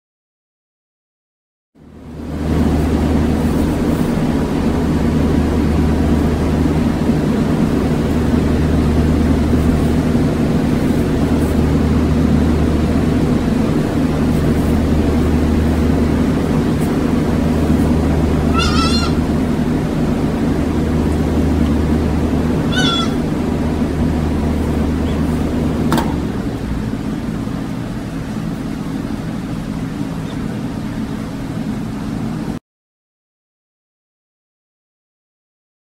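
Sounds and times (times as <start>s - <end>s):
low mechanical hum: 1.8s - 32.6s
goat kid bleating: 18.5s - 19.3s, 22.6s - 23.3s.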